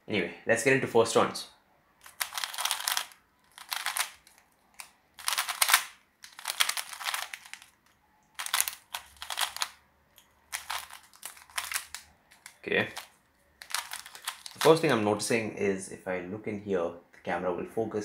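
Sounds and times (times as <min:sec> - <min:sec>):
puzzle cube clattering clicks: 0:02.0 - 0:14.9.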